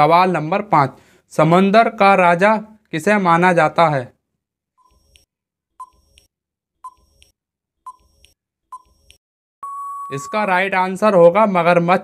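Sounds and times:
short electronic beeps: 0:09.6 - 0:10.6.

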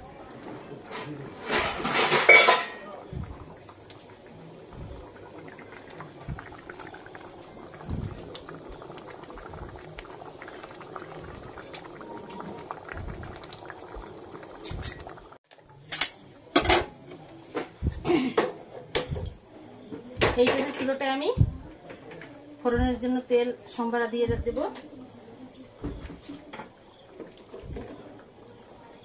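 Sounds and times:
thick stew bubbling: 0:00.0 - 0:15.4, 0:17.7 - 0:18.2, 0:18.9 - 0:20.5, 0:24.0 - 0:29.0
metal kitchenware clanking: 0:01.4 - 0:03.2
bubbles popping: 0:03.0 - 0:15.4, 0:27.2 - 0:28.1.

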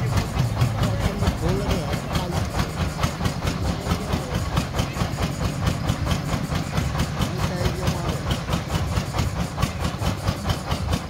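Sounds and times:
drilling rig engine running: 0:00.0 - 0:11.0.

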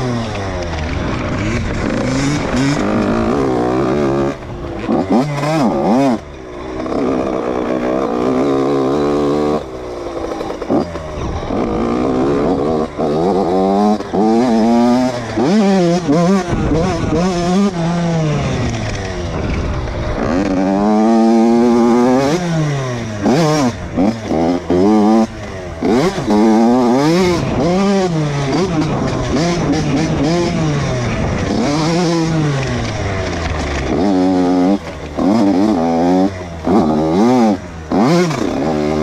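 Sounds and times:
dirt bike engine revving: 0:00.0 - 0:39.0.

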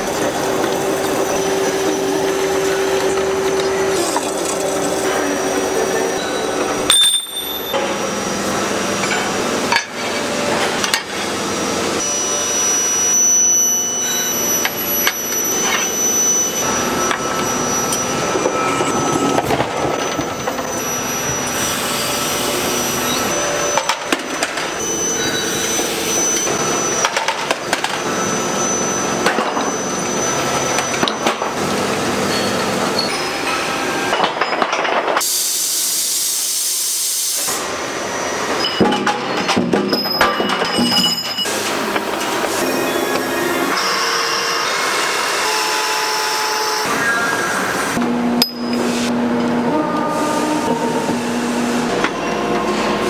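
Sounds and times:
factory machinery din: 0:00.0 - 0:35.8
thin high machine whines: 0:00.2 - 0:34.6, 0:37.6 - 0:53.0.

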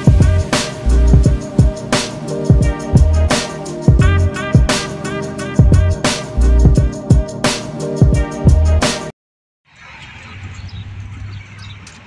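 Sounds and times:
low drone: 0:00.0 - 0:07.4
faint bird chirps: 0:09.7 - 0:12.0
traffic hum: 0:09.7 - 0:12.0.

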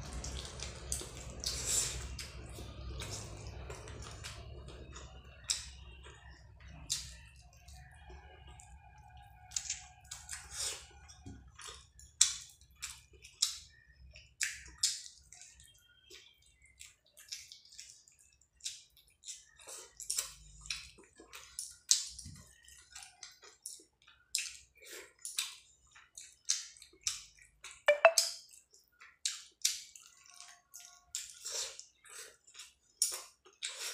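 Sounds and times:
wet chewing with lip smacks: 0:09.4 - 0:33.9.

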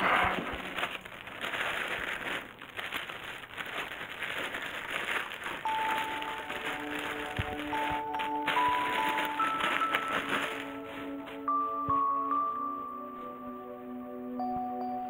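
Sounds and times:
plastic bags crinkling: 0:00.0 - 0:12.5
steady musical tones: 0:05.6 - 0:15.0.

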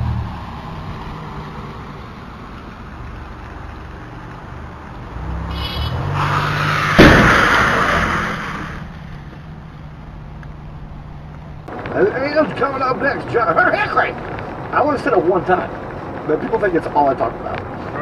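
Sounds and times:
car on wet road: 0:00.0 - 0:18.0
car collision crash: 0:06.2 - 0:08.9.

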